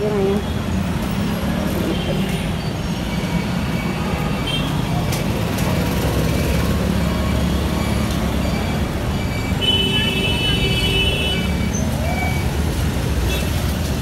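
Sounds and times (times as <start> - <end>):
passing cars and motorbikes: 0.0 - 14.0.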